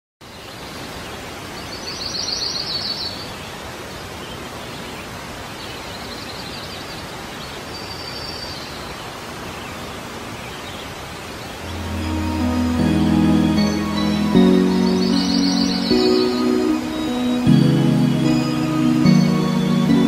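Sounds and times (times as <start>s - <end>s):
outdoor ambient hiss: 0.2s - 20.0s
small birds chirping: 0.2s - 20.0s.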